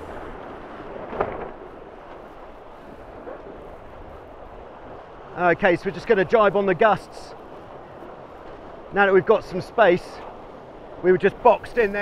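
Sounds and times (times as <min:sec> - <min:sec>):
water along boat hulls: 0:00.0 - 0:12.0
wind rushing over microphone: 0:00.0 - 0:12.0.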